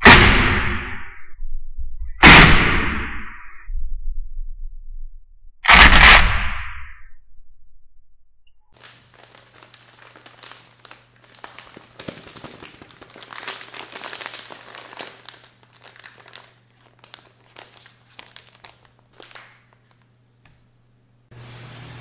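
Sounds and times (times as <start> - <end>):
plastic bread packet crinkling: 8.7 - 20.1.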